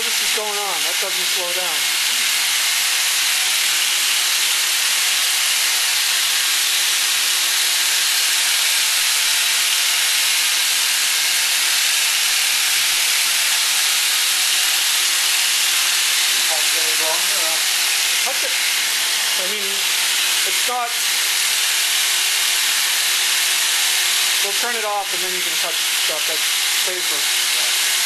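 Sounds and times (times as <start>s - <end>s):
motor rushing hiss: 16.0s - 27.9s.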